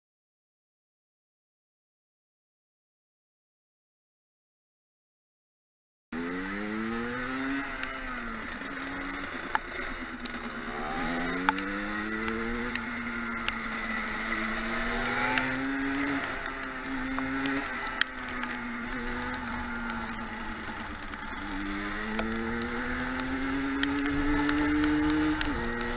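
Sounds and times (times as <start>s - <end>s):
two-stroke motorcycle engine revving: 6.2s - 25.9s
sharp clicks: 7.6s - 25.9s.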